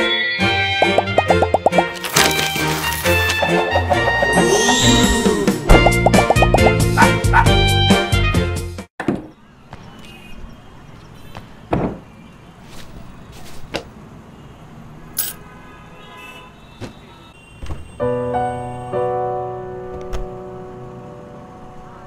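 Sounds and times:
footsteps: 0.8s - 5.0s.

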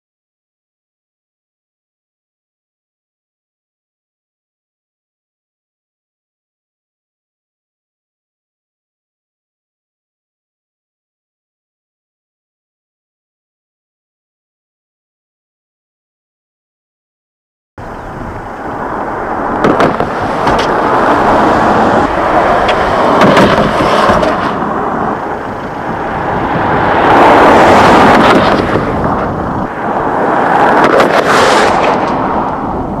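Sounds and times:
car driving with rushing noise: 17.8s - 33.0s.

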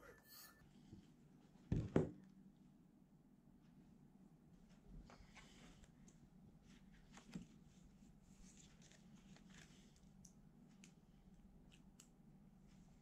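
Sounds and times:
paper pages rustling and turning: 6.6s - 11.0s.

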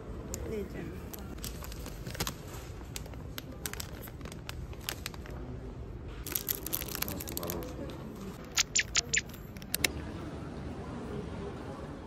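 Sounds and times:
plastic bags crinkling: 1.3s - 5.4s, 6.2s - 7.8s.

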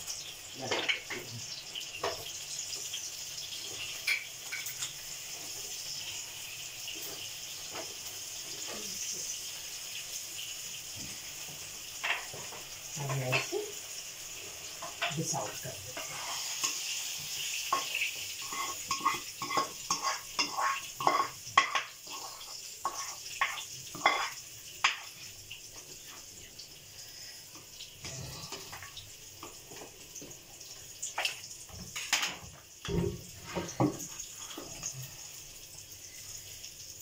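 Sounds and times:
spoon scraping a pan: 14.8s - 25.2s.

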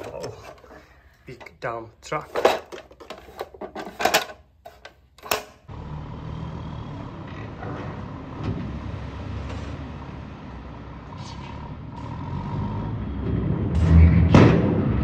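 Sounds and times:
diesel truck engine running: 5.7s - 14.0s.

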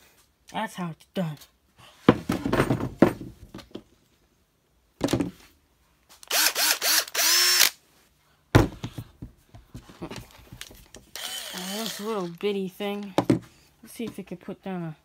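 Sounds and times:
cordless drill motor whine: 6.3s - 7.8s, 11.1s - 12.3s
thump: 8.5s - 9.3s.

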